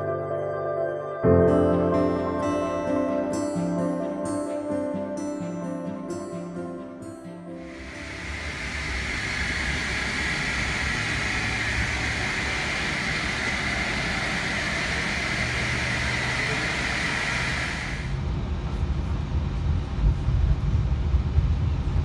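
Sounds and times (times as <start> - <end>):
airliner engine hiss: 7.6 - 19.0
airliner low rumble: 7.7 - 22.0.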